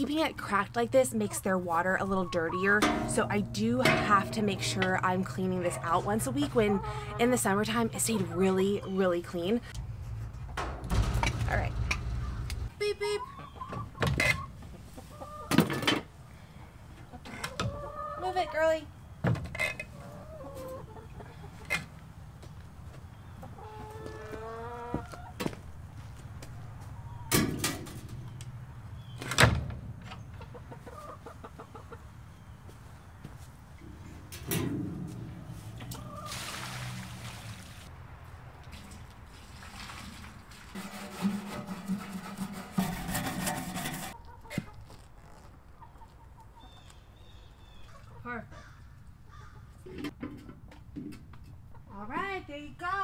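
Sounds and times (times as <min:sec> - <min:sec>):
hens clucking: 0:00.0 - 0:09.8, 0:11.0 - 0:16.1, 0:16.8 - 0:18.9, 0:19.5 - 0:22.0, 0:23.0 - 0:25.5, 0:30.2 - 0:32.5, 0:33.7 - 0:36.5, 0:43.8 - 0:52.0.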